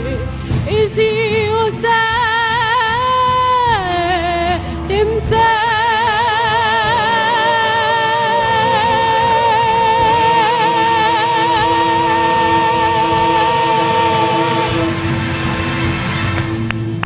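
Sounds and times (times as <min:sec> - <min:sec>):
low held note: 0:06.5 - 0:17.0.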